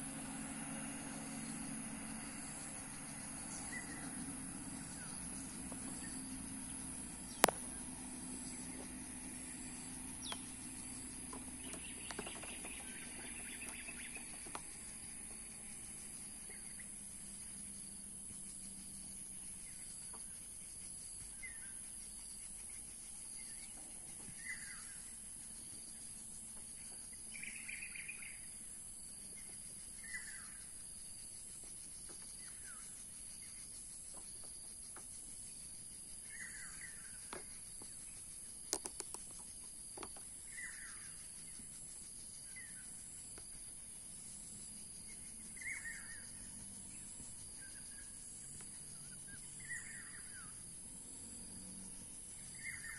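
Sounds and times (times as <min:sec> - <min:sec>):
steady high hiss: 0:00.0 - 0:27.8
birds chirping: 0:00.0 - 0:52.9
sharp clicks: 0:38.7 - 0:39.4.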